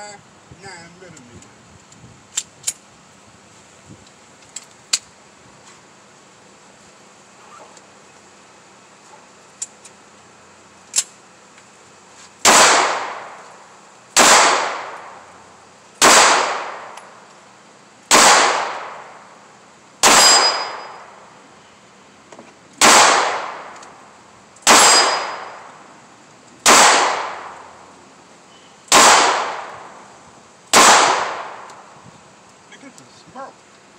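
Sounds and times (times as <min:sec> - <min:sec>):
pistol shots with echo: 0:12.4 - 0:13.4, 0:14.2 - 0:15.2, 0:16.0 - 0:17.0, 0:18.1 - 0:19.2, 0:20.0 - 0:21.1, 0:22.8 - 0:23.8, 0:24.6 - 0:25.7, 0:26.6 - 0:27.6, 0:28.9 - 0:29.9, 0:30.7 - 0:31.7.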